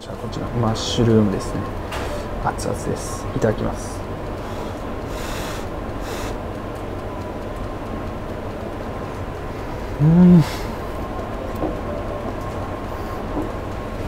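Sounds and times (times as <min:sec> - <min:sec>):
low background rumble: 0:00.0 - 0:14.0
man humming mmm: 0:09.9 - 0:10.8.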